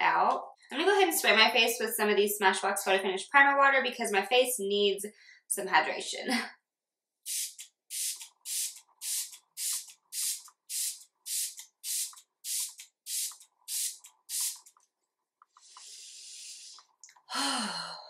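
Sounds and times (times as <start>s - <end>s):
spray bottle hissing pumps: 7.3s - 14.8s, 15.5s - 16.9s.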